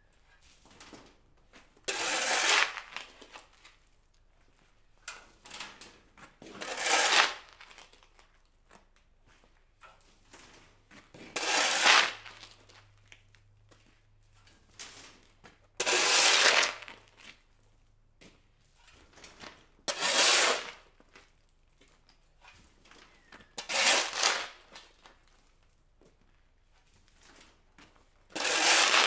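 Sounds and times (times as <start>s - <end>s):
shovel blade scraping concrete: 1.9s - 3.6s, 5.1s - 8.0s, 10.4s - 12.8s, 15.8s - 17.4s, 18.8s - 20.9s, 23.5s - 25.0s, 28.3s - 29.0s.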